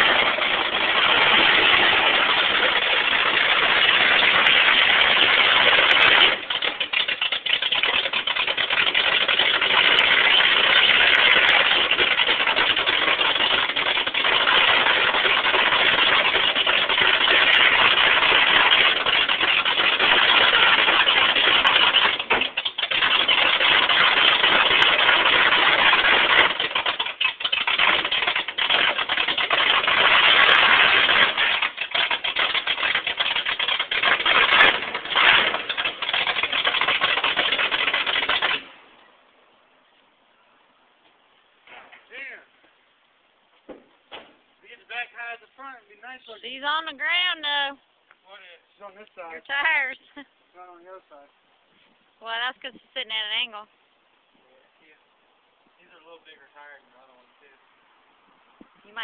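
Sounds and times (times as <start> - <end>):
truck engine running under load: 0.0 - 38.4.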